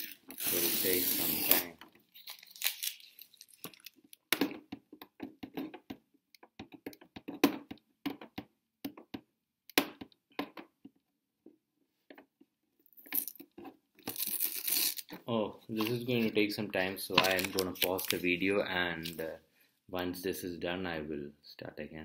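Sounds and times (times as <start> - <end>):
fingernails scraping plastic film: 0.0 - 3.6, 14.1 - 15.1, 17.2 - 18.3.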